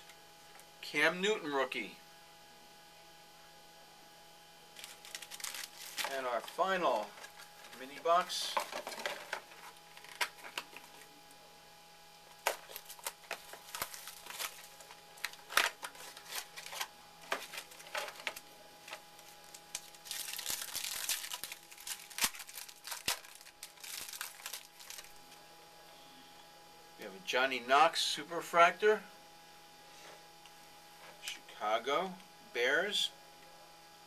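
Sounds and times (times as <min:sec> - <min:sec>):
packaging crinkling and tearing: 0:04.8 - 0:07.8, 0:08.4 - 0:11.1, 0:12.3 - 0:25.2.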